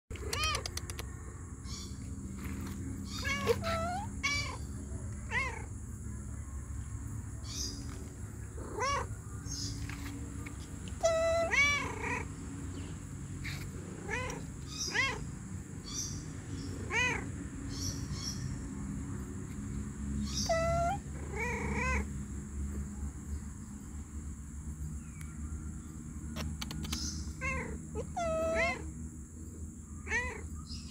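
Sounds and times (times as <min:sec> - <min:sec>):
cat meowing: 0:00.2 - 0:00.8, 0:03.1 - 0:05.7, 0:08.6 - 0:09.1, 0:11.0 - 0:12.3, 0:13.4 - 0:15.3, 0:16.8 - 0:17.3, 0:20.3 - 0:22.0, 0:27.4 - 0:28.9, 0:30.0 - 0:30.4.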